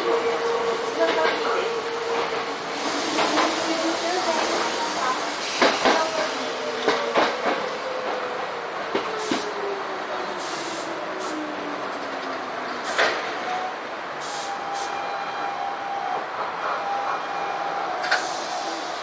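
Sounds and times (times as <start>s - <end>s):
air brake hiss: 10.4s - 11.4s, 14.2s - 14.9s, 18.1s - 19.0s.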